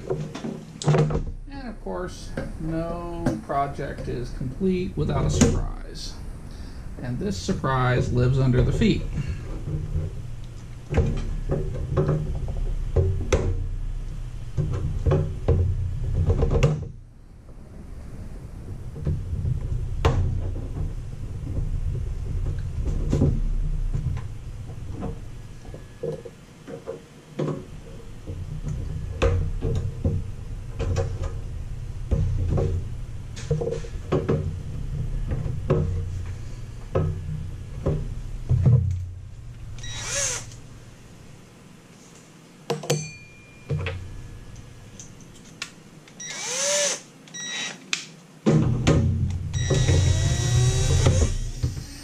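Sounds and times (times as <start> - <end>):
low hum: 0.0 - 26.7, 27.5 - 41.9, 43.1 - 46.7, 48.7 - 52.0
cordless drill whirring: 39.8 - 40.6, 46.2 - 47.8, 49.6 - 52.0.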